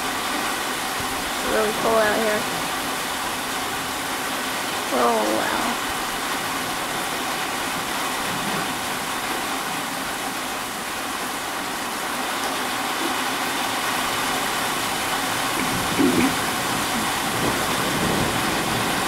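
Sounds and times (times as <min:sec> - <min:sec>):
heavy rain downpour: 0:00.0 - 0:19.0.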